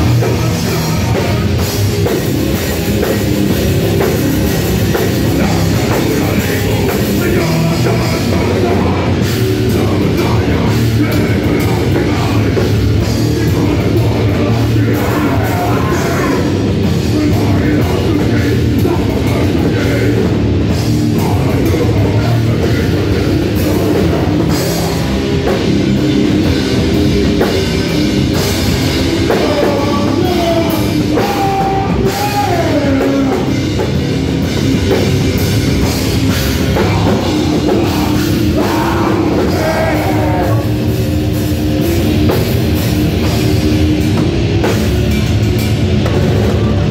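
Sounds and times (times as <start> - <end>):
person singing: 0.0 - 2.2, 5.4 - 20.3, 29.1 - 33.7, 36.6 - 40.8
distorted guitars: 0.0 - 46.9
drum kit: 0.0 - 46.9.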